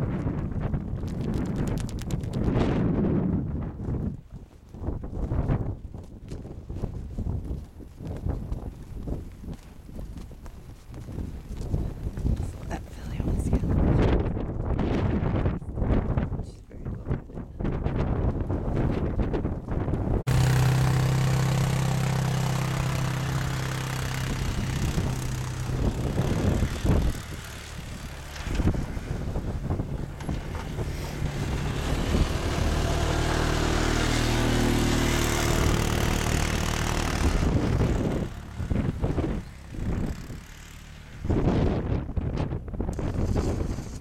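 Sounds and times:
wind rushing on microphone: 0:00.0 - 0:44.0
vehicle engine running: 0:19.8 - 0:44.0.

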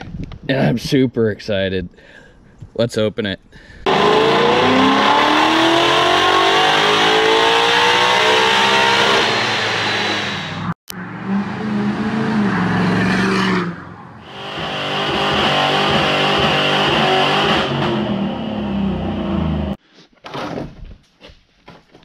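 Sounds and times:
car engine revving hard: 0:03.9 - 0:19.8.

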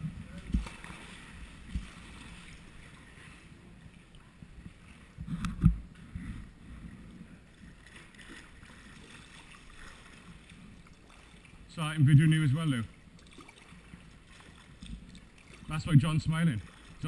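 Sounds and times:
paddle strokes splashing: 0:00.0 - 0:17.0
water lapping at hull: 0:00.0 - 0:17.0
thump and splash: 0:00.4 - 0:02.4.

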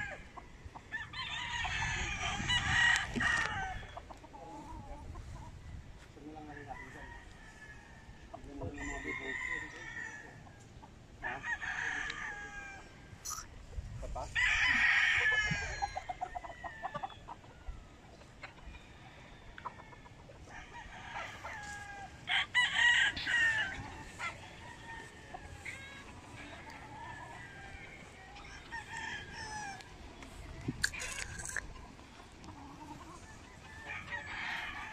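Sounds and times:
rooster crowing: 0:00.0 - 0:04.0, 0:06.4 - 0:10.6, 0:11.2 - 0:13.1, 0:14.2 - 0:17.2, 0:18.8 - 0:30.4, 0:32.6 - 0:34.9.

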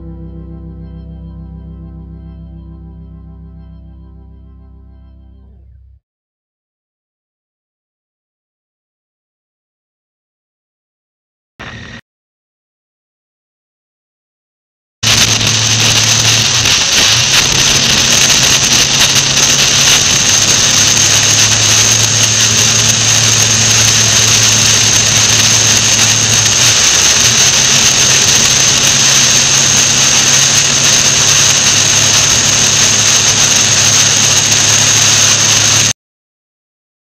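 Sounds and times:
constant high whine: 0:00.0 - 0:06.0, 0:11.6 - 0:12.0, 0:15.0 - 0:36.0
wind rush on microphone: 0:15.0 - 0:35.9
motorcycle engine cruising: 0:15.3 - 0:34.9.

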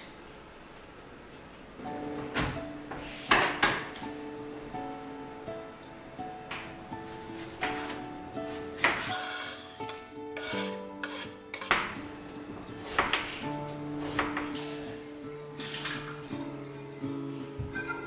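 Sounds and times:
soft acoustic guitar music: 0:01.8 - 0:18.0
kitchen items knocking and scraping: 0:07.4 - 0:12.0.

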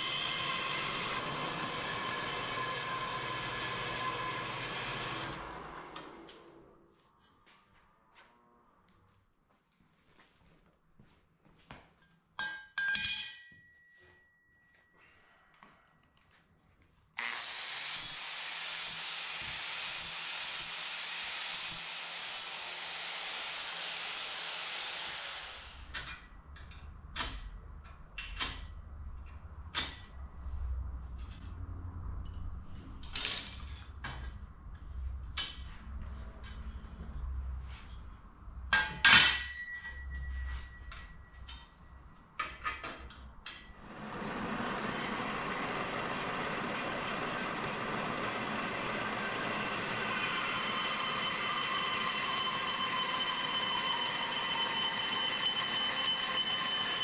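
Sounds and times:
metal-cutting bandsaw running: 0:00.0 - 0:06.4, 0:17.2 - 0:25.8, 0:43.8 - 0:57.0
angle grinder on steel: 0:00.0 - 0:06.6, 0:17.2 - 0:25.9, 0:43.9 - 0:57.0
steel tubing knocks and clanks: 0:12.4 - 0:13.7, 0:38.7 - 0:40.0.

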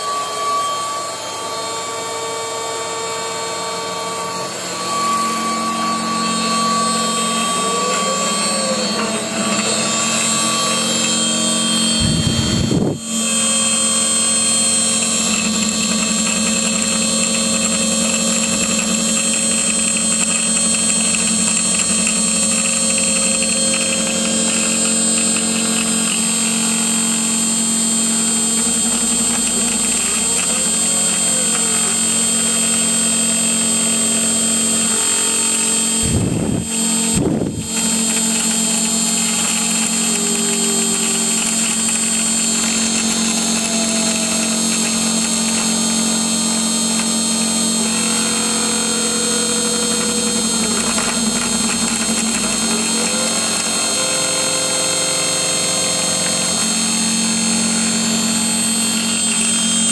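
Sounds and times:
router spindle whine milling metal: 0:00.0 - 0:59.9.

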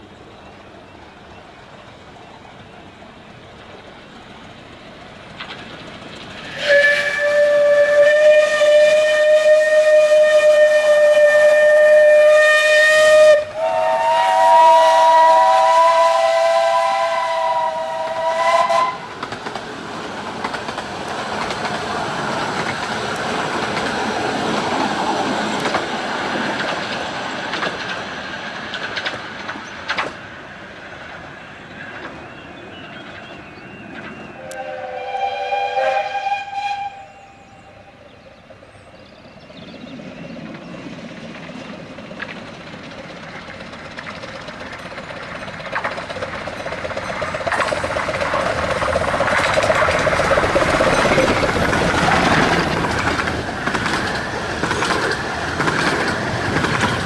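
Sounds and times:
train rumbling past: 0:00.0 - 0:57.0
chord-like train whistle: 0:06.5 - 0:19.1, 0:34.4 - 0:38.0
steam locomotive whistle: 0:06.5 - 0:19.2, 0:34.3 - 0:38.0.

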